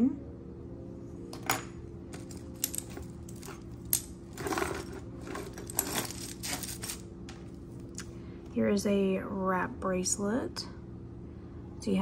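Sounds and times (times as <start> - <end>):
faint steady hum: 0.0 - 12.0
jewelry clicking and clinking: 1.3 - 7.6.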